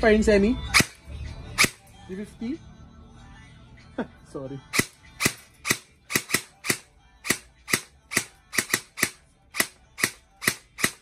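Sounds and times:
airsoft rifle shots: 0:00.7 - 0:01.0, 0:01.6 - 0:01.8, 0:04.8 - 0:11.0.

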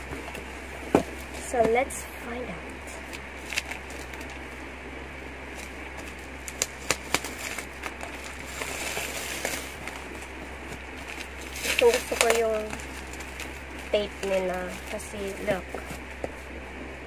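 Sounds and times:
packing tape and cardboard crackling: 0:03.0 - 0:04.4, 0:05.5 - 0:16.2
cardboard rustling: 0:05.5 - 0:16.5.

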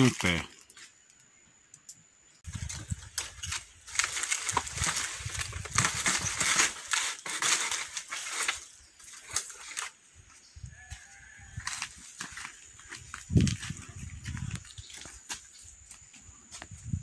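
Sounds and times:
dry palm fronds rustling and snapping: 0:02.5 - 0:10.0.

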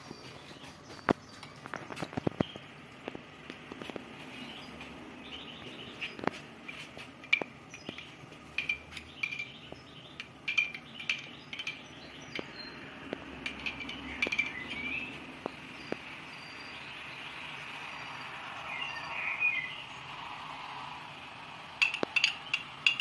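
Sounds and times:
bird chirps: 0:04.2 - 0:20.2
metal spoon clinking on glass bowl: 0:07.3 - 0:09.6, 0:10.2 - 0:12.0, 0:13.4 - 0:14.6, 0:21.8 - 0:23.0.

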